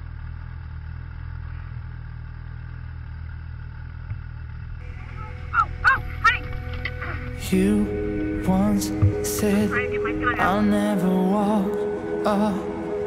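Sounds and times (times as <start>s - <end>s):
snowmobile engine idling: 0.0s - 11.1s.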